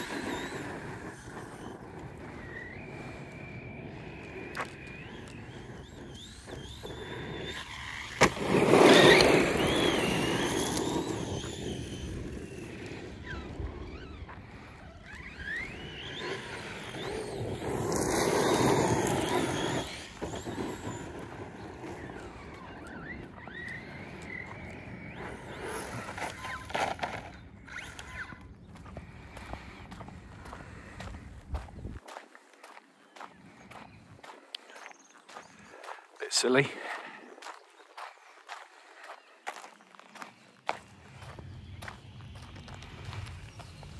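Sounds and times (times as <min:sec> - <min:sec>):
electric motor whining: 0:00.0 - 0:31.1
tyres rolling on ground: 0:00.0 - 0:32.1.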